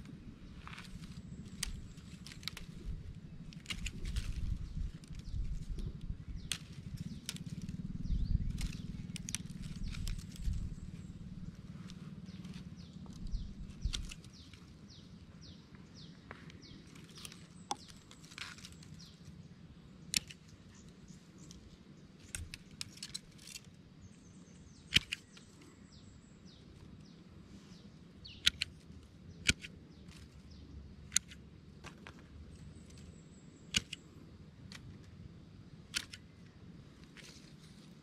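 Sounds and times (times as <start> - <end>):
small birds chirping: 0.0 - 38.0
pruning shears snipping twigs: 0.6 - 11.1, 11.8 - 14.8, 16.8 - 19.2, 20.0 - 20.6, 22.2 - 23.8, 24.8 - 25.6, 28.2 - 35.2, 35.8 - 38.0.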